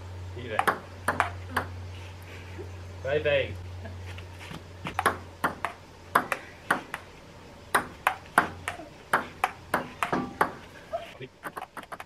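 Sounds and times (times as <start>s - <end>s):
ping-pong ball clicking: 0.6s - 1.7s, 5.0s - 7.0s, 7.8s - 10.6s.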